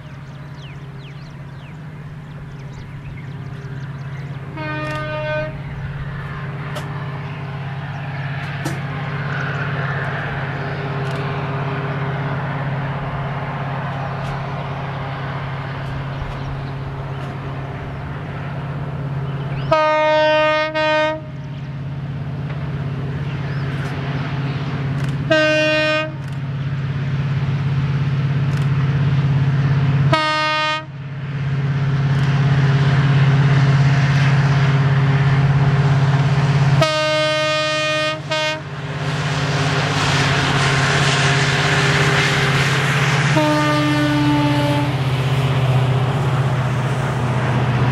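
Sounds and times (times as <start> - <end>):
diesel locomotive engine drone: 0.0 - 47.9
train horn blasts: 4.4 - 5.8, 19.6 - 21.5, 25.3 - 26.4, 30.1 - 31.0, 36.7 - 38.8, 43.2 - 45.2.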